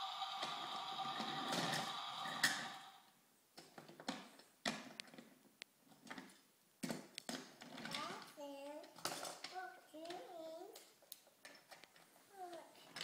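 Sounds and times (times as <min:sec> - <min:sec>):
mechanical whir: 0:00.0 - 0:03.0.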